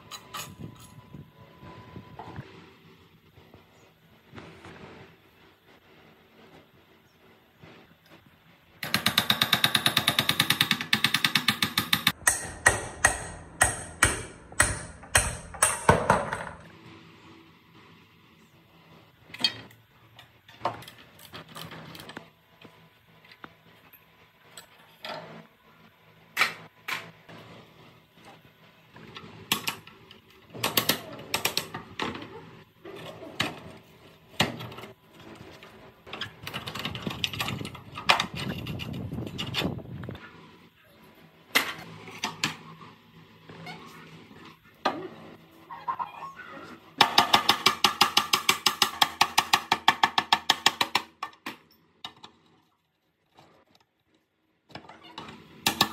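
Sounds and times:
metal parts clinking: 0.0 - 1.0
hammer on steel: 11.0 - 16.1.

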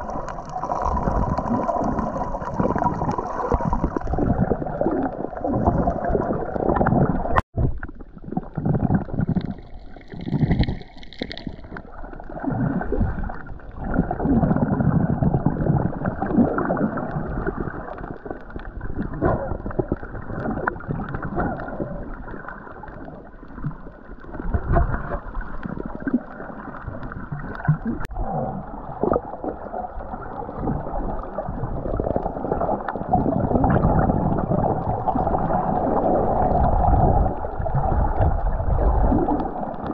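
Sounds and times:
muffled water sloshing and gurgling: 0.0 - 39.9.

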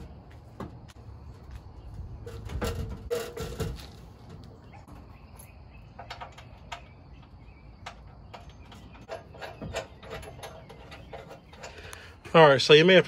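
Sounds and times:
light metallic clicks and knocks: 2.3 - 12.1.

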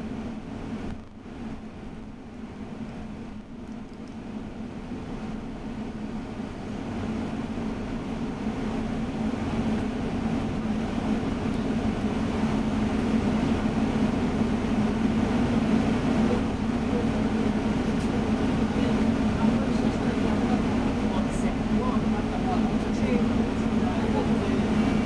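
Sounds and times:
bus engine drone: 0.0 - 25.0.

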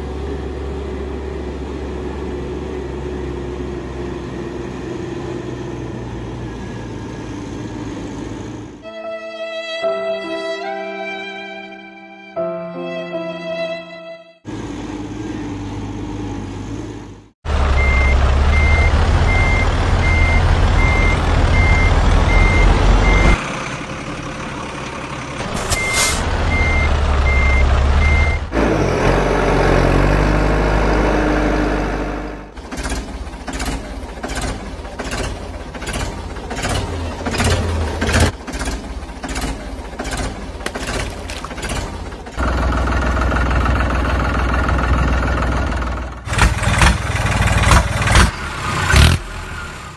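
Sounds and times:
truck reversing alarm beeping: 17.7 - 23.4, 25.5 - 28.5.

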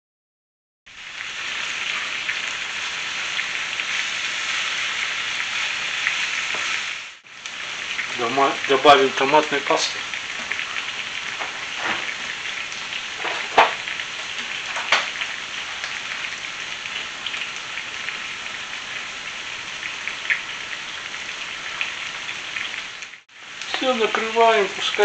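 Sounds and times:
meat sizzling in a frying pan: 0.9 - 25.0.

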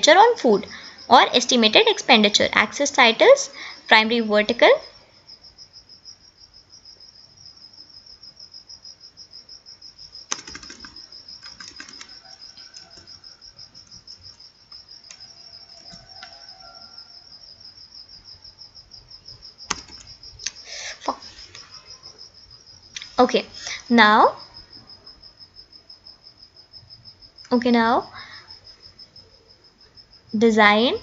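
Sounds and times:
cricket chirping: 0.0 - 31.0
computer mouse clicks: 10.3 - 12.1, 19.7 - 20.6.

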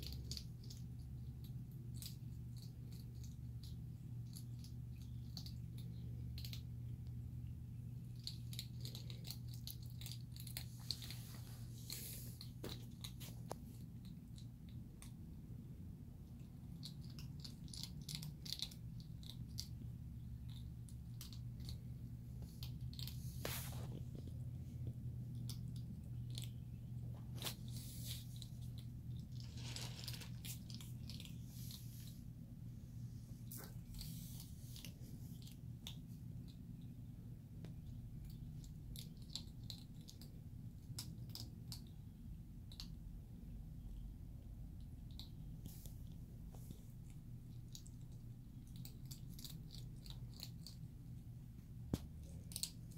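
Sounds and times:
low steady hum: 0.0 - 52.9
animals crunching dry pellets: 7.9 - 15.2, 16.7 - 32.3, 45.1 - 51.2, 52.0 - 52.9.

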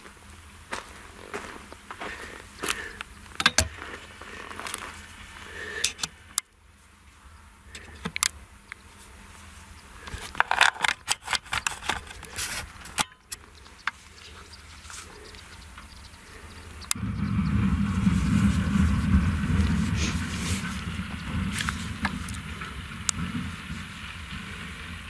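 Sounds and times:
machine running low and steady: 0.0 - 25.0
beets knocking and clattering: 10.0 - 14.0.

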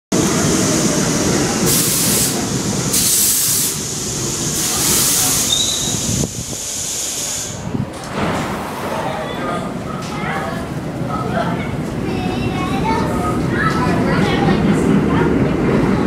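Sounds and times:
train wheels rumbling on rail: 0.2 - 16.0
high hiss bursts: 0.5 - 7.7
brief high squeal: 5.4 - 6.1.

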